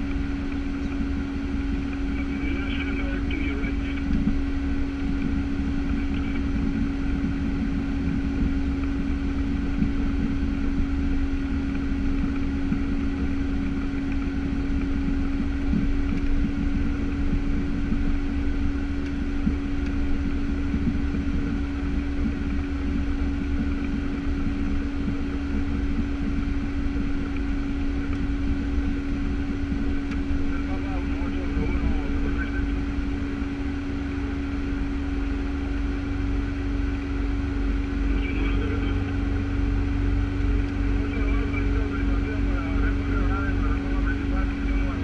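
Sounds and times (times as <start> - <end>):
turboprop engines droning: 0.0 - 45.0.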